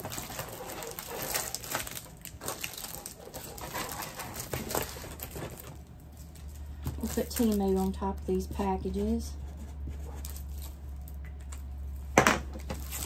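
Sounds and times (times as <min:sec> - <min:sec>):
plastic packaging crinkling: 0:00.0 - 0:08.9, 0:10.2 - 0:13.0.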